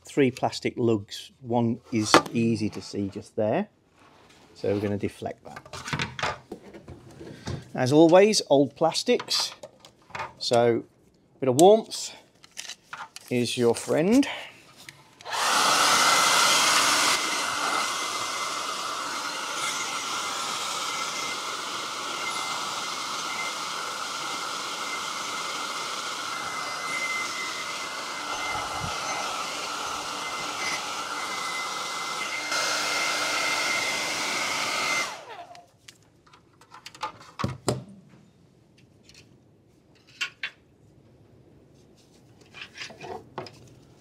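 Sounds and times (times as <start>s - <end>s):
hair dryer blowing: 15.2s - 35.7s.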